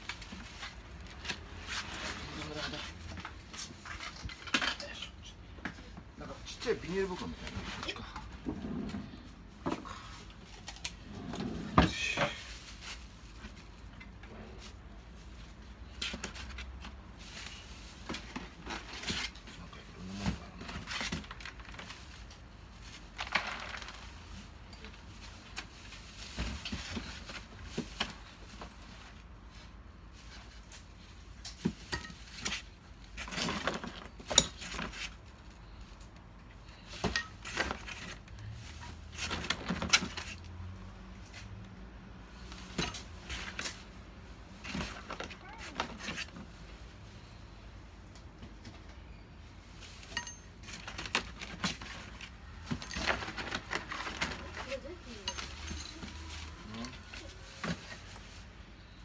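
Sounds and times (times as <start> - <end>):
small metal parts clinking: 50.1 - 51.0, 52.7 - 54.0, 55.2 - 58.3.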